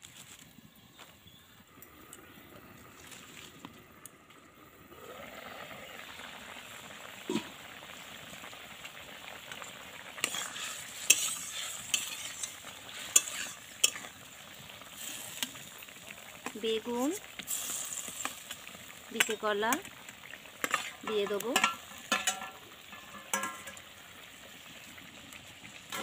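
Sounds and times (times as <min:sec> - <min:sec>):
water bubbling in a pot: 0:01.5 - 0:26.0
steel spatula scraping pan: 0:10.2 - 0:14.2, 0:20.6 - 0:23.8.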